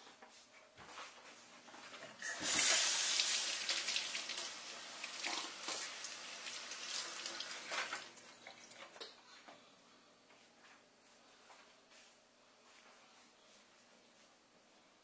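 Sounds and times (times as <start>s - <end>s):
water running into steel sink: 2.2s - 9.0s.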